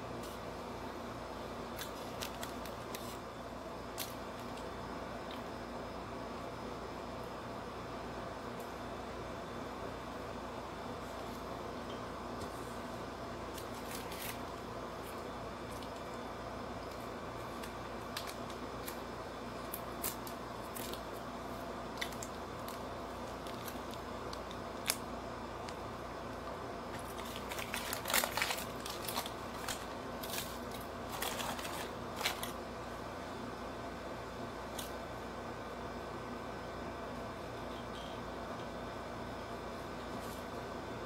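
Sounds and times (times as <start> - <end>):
steady low hum: 0.0 - 41.0
sachet crinkling and tearing: 1.7 - 3.2, 13.5 - 16.2, 16.8 - 25.9, 26.9 - 32.6.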